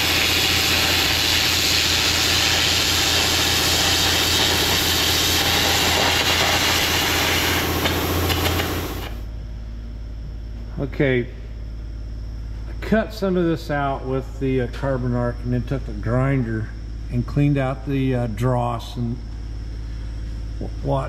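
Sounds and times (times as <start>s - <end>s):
carbon arc gouging hissing crackle: 0.0s - 9.2s
steady low hum: 0.0s - 21.0s.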